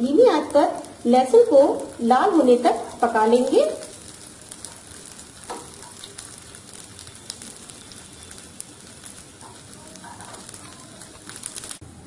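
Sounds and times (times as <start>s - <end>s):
garlic sizzling in hot oil: 0.0s - 12.0s
spoon stirring in pan: 3.9s - 11.7s.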